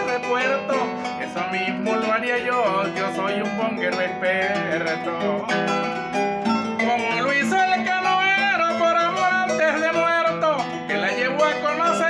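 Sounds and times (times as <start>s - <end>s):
man singing: 0.0s - 12.0s.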